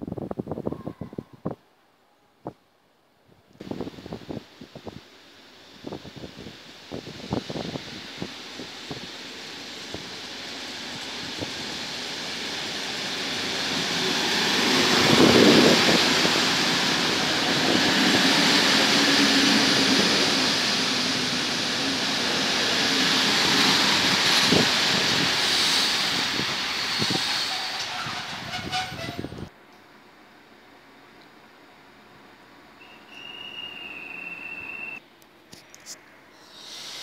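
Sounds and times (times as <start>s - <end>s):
train wheels rumbling on rail: 3.6s - 29.8s.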